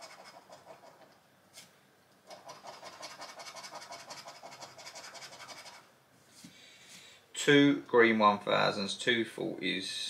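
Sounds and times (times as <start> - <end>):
scratch card scraping: 0.0 - 1.0, 2.3 - 5.8.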